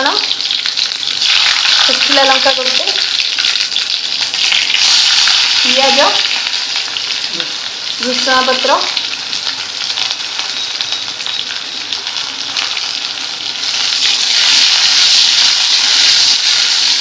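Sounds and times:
onion sizzling in hot oil: 0:00.0 - 0:17.0.

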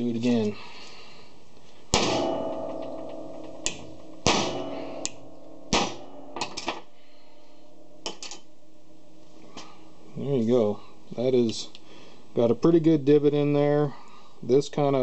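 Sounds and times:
hammer striking steel punch: 0:01.9 - 0:06.9
metallic ring: 0:02.0 - 0:10.9.

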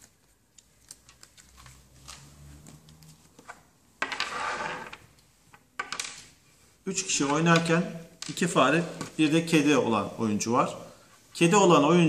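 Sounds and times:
rustling scrape: 0:04.0 - 0:05.1.

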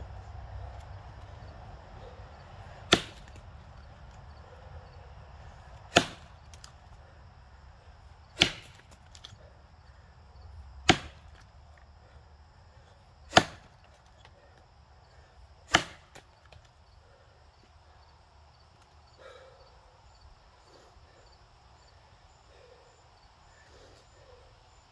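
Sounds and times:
axe chopping into log: 0:02.9 - 0:03.4, 0:05.8 - 0:06.7, 0:08.3 - 0:09.3, 0:10.8 - 0:11.5, 0:13.3 - 0:14.0, 0:15.6 - 0:16.6.

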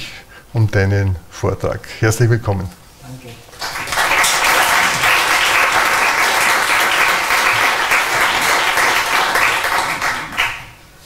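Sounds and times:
audience applauding: 0:03.5 - 0:10.8.

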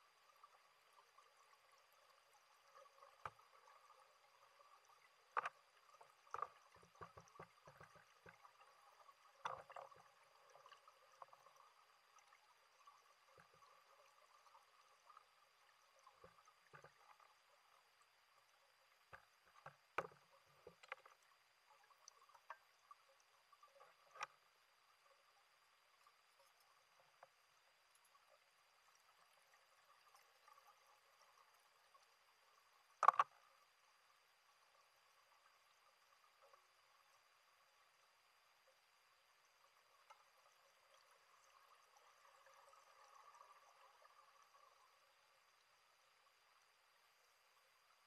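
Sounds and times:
low steady hiss: 0:00.0 - 0:48.0
muffled underwater knocks and clicks: 0:02.9 - 0:04.0, 0:04.8 - 0:11.6, 0:16.0 - 0:17.4, 0:19.0 - 0:22.8, 0:23.6 - 0:24.4, 0:33.0 - 0:33.5.

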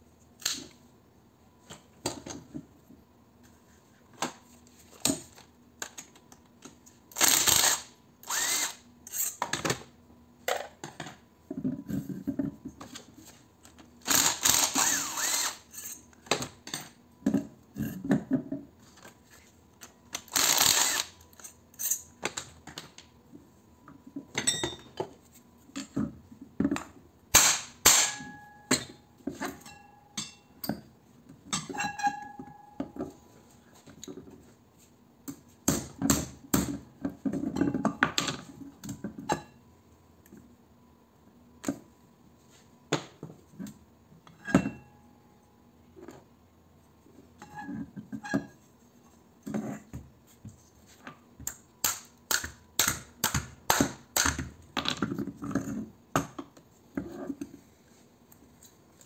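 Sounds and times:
power tool bursts: 0:07.2 - 0:08.8, 0:14.1 - 0:15.6, 0:20.3 - 0:21.2.

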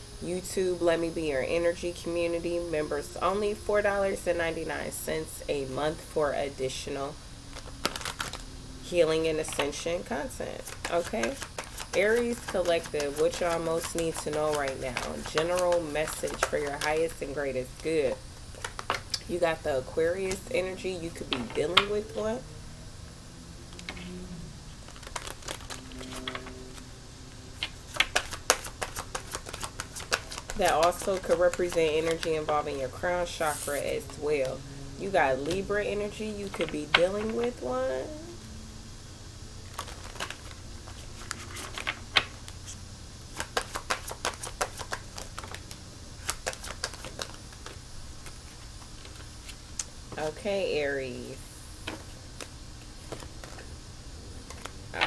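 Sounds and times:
cards being shuffled: 0:07.5 - 0:08.5, 0:10.6 - 0:19.2, 0:24.7 - 0:26.9, 0:27.5 - 0:32.8, 0:33.4 - 0:34.5, 0:39.7 - 0:49.9, 0:51.7 - 0:53.7, 0:54.4 - 0:55.0.

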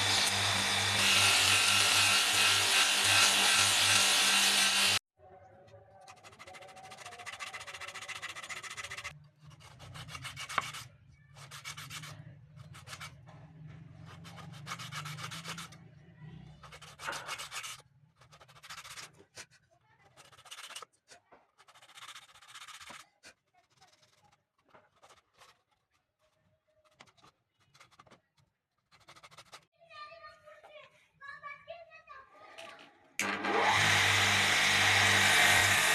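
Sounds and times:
wood rubbed on sandpaper: 0:00.0 - 0:05.0, 0:06.1 - 0:13.2.

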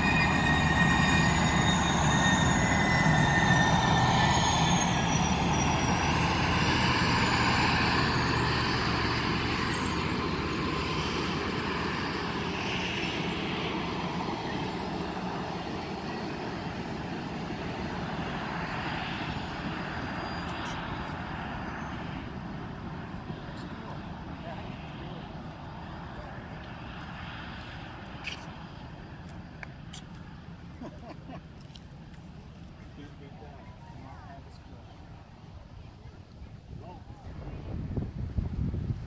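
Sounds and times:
train wheels rumbling on rails: 0:00.0 - 0:18.6.

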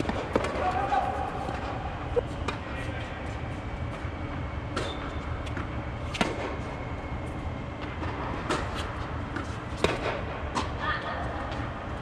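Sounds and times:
tennis balls bouncing on court: 0:00.0 - 0:00.8
tennis balls struck by rackets: 0:00.0 - 0:00.8, 0:04.3 - 0:06.7, 0:07.8 - 0:10.8.

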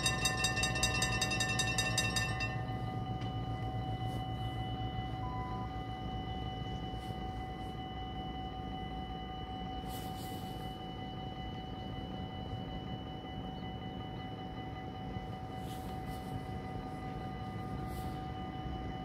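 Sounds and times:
level crossing bells ringing: 0:00.0 - 0:04.1.

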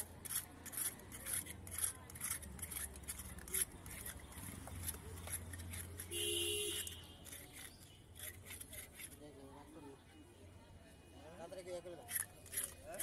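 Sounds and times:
knife scraping fish scales: 0:00.0 - 0:09.4, 0:12.0 - 0:13.0.

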